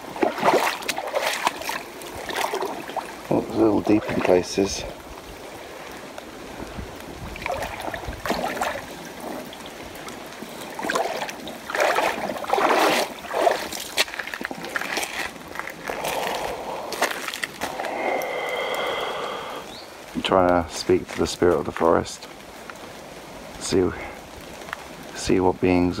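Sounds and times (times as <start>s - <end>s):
feet wading and splashing: 0.0s - 19.6s
flowing water rushing: 0.0s - 26.0s.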